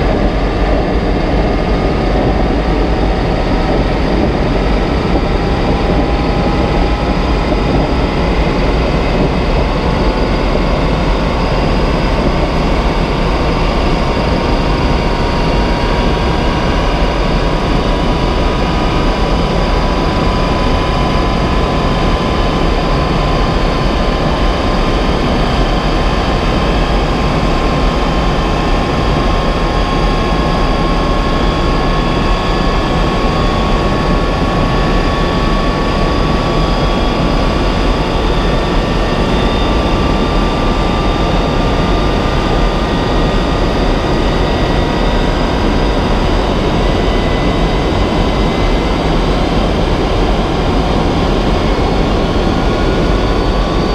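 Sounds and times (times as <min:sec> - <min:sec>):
jet turbine rushing whine: 0:00.0 - 0:53.9.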